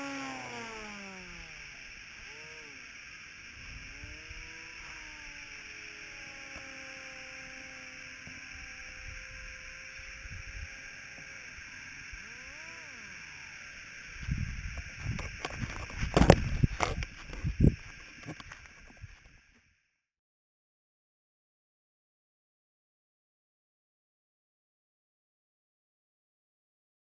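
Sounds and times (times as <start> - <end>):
model plane motor whine: 0.0 - 20.1.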